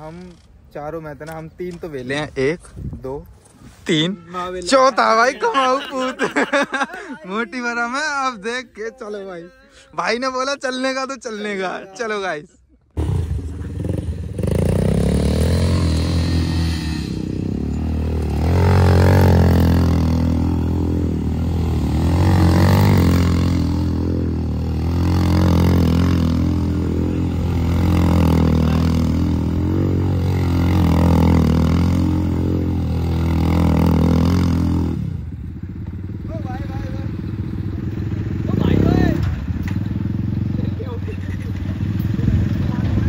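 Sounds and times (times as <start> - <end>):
atv engine revving: 12.9 - 43.0.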